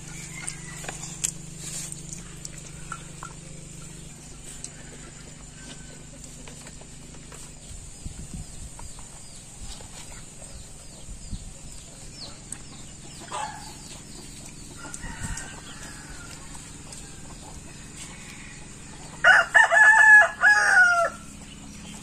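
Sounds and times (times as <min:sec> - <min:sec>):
rooster crowing: 0:00.0 - 0:01.5, 0:04.3 - 0:06.2, 0:14.8 - 0:21.4
chickens clucking: 0:00.0 - 0:22.0.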